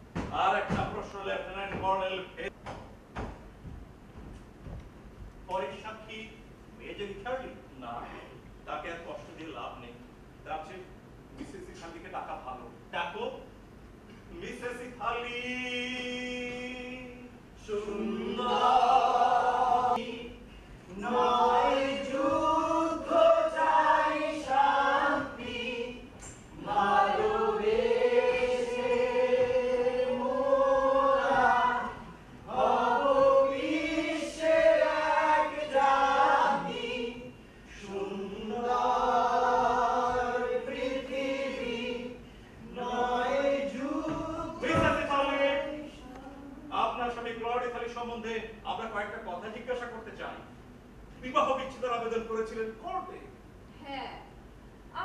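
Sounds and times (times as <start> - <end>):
group of voices singing: 17.6 - 46.7.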